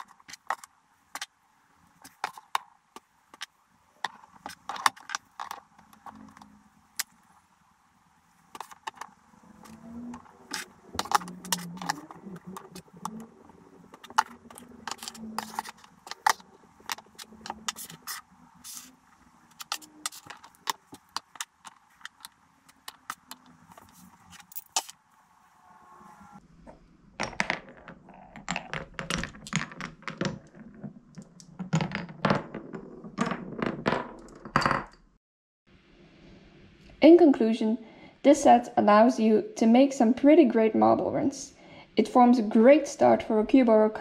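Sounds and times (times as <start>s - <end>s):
wooden blocks knocking together: 2.0s - 7.2s, 8.5s - 18.8s, 19.5s - 25.0s, 27.2s - 35.0s.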